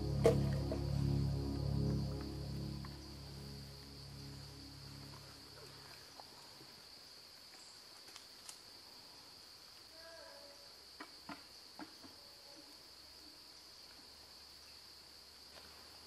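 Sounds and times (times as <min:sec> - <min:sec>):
insects buzzing: 0:00.0 - 0:10.1.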